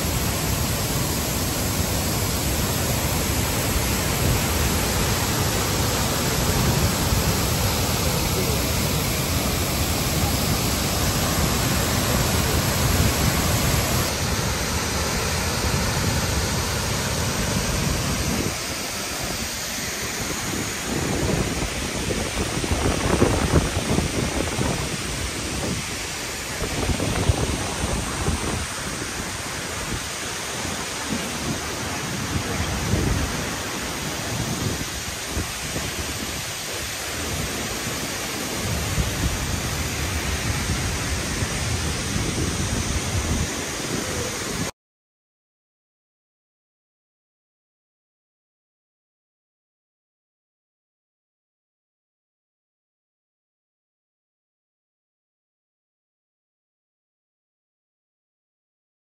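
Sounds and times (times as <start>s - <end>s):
waterfall roaring: 0.0s - 44.7s.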